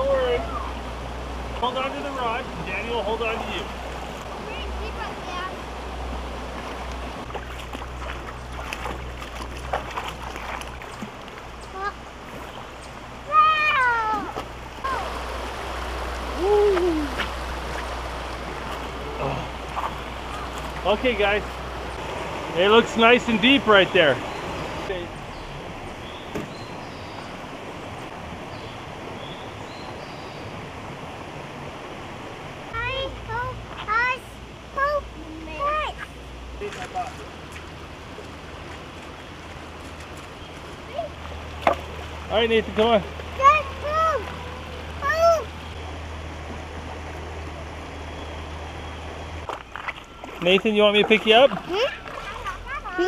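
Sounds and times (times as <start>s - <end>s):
creek water running over rocks: 0.0s - 53.0s
footsteps and knocks on stones: 49.4s - 50.4s.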